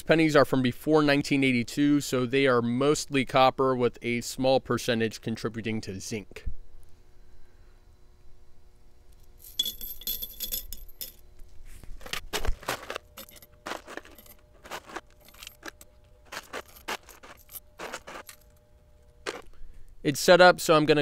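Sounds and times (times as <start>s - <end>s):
coins jingling and clinking: 9.4s - 11.2s, 12.0s - 18.6s.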